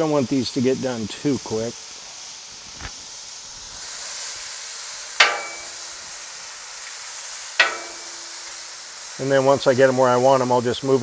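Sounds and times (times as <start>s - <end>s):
mushrooms sizzling on a griddle: 0.0s - 11.0s
sharp metallic clinks: 5.2s - 6.0s, 7.6s - 8.5s.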